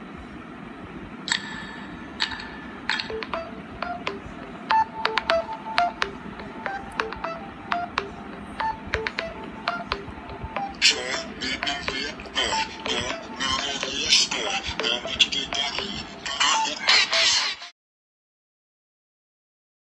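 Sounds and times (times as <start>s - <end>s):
clicky plucked melody from phone speaker: 1.3s - 10.8s.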